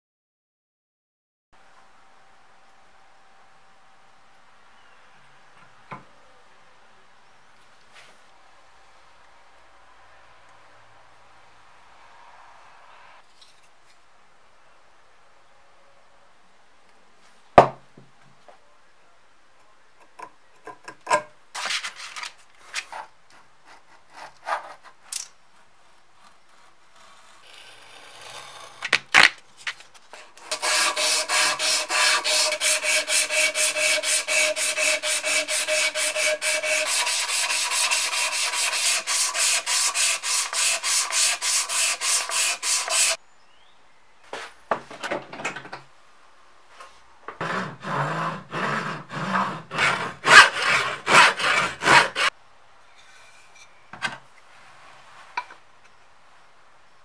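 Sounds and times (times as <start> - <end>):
sandpaper rubbing wood: 30.4 - 43.2, 47.4 - 52.3.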